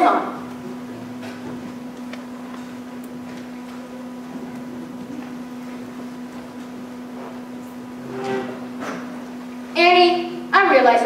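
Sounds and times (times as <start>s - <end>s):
electrical hum: 0.0s - 11.0s
hall room noise: 0.0s - 11.0s
soft footsteps on stage floor: 0.4s - 7.9s.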